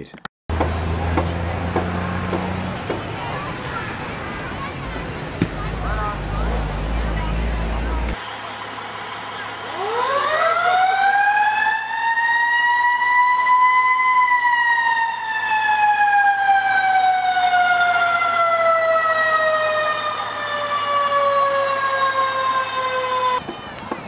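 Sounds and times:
siren wailing: 6.4s - 23.4s.

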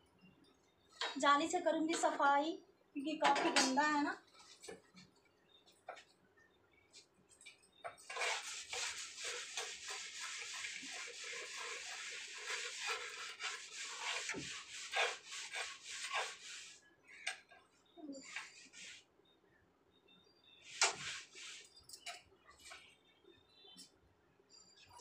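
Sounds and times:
scouring pad scrubbing: 8.0s - 16.8s.

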